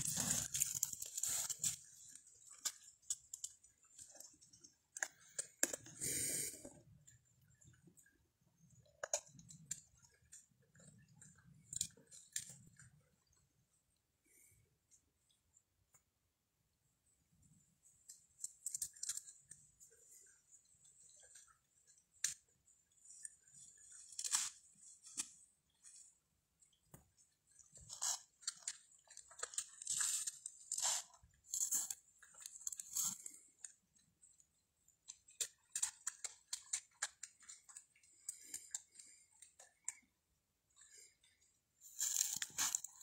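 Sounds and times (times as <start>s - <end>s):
twigs rustling: 0.0s - 6.2s.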